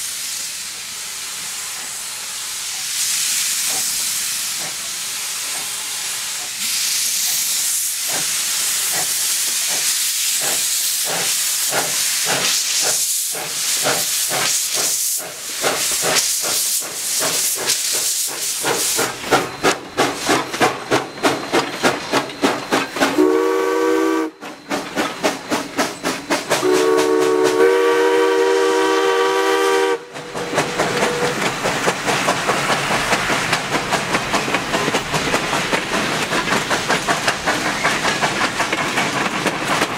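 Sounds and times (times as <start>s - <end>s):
steam hiss: 0.0s - 39.9s
steam locomotive exhaust chuffs: 0.0s - 39.9s
coaches clattering over rail joints: 17.2s - 23.2s, 30.2s - 39.9s
steam whistle blasts: 23.1s - 24.6s, 26.6s - 31.4s.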